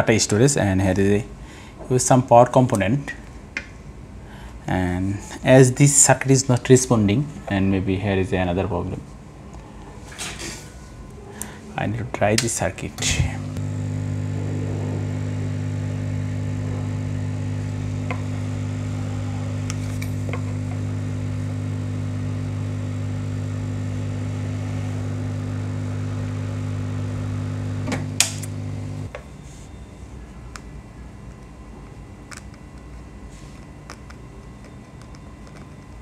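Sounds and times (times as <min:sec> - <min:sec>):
low electrical hum: 0:00.0 - 0:36.0.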